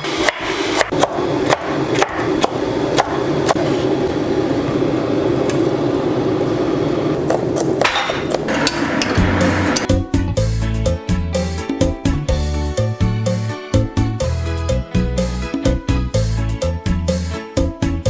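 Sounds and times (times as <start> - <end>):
steady background hum: 0.0 - 9.9.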